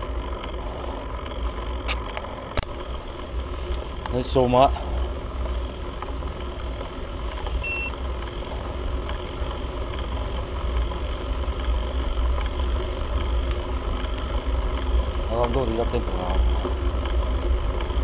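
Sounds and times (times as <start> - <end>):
wind and road noise: 0.0 - 18.0
short electronic beep: 7.6 - 8.0.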